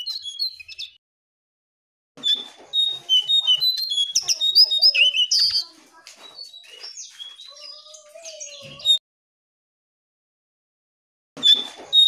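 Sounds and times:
songbird chirping and whistling: 0.0s - 1.0s, 2.2s - 9.0s.

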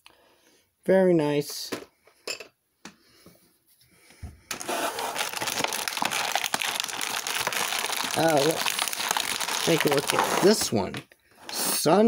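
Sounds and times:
plastic packaging crinkling: 4.5s - 11.1s.

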